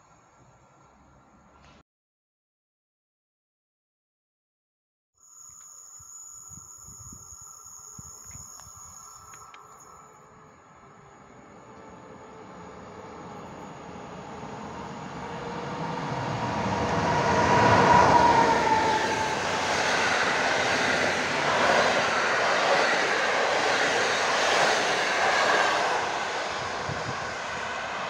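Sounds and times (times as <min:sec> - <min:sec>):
train passing: 0:06.0 - 0:28.0.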